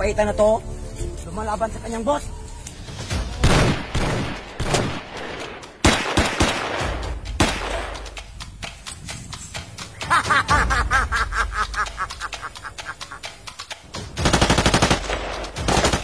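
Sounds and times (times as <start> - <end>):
automatic gunfire: 3.4 - 7.7, 14.2 - 16.0
single gunshots: 3.4 - 7.8.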